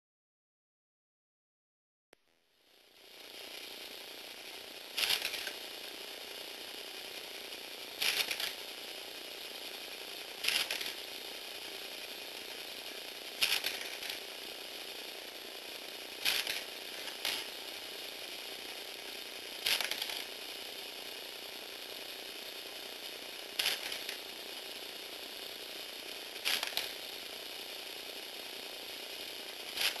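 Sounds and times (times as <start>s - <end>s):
electric gear motor whirring: 5.0s - 5.6s, 8.0s - 8.6s, 16.2s - 18.8s, 26.2s - 27.3s.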